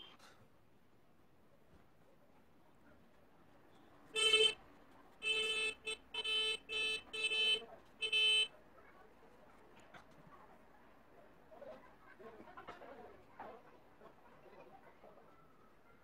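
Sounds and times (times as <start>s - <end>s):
horn honking: 4.2s - 4.6s.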